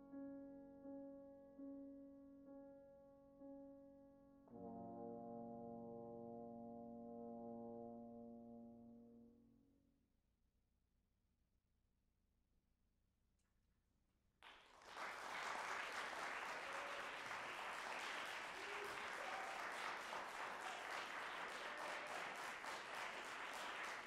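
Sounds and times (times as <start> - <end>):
audience applauding: 14.4 - 24.0.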